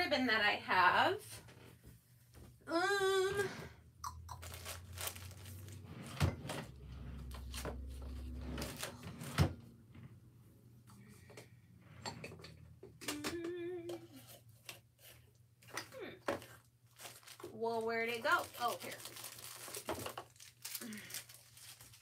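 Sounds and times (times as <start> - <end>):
rustling of craft supplies: 4.4 - 10.2, 14.0 - 22.0.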